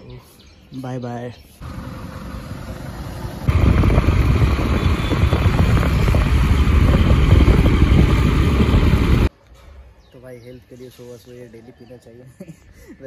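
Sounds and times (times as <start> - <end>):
motorcycle engine: 1.6 - 9.3
wind noise on microphone: 3.4 - 9.3.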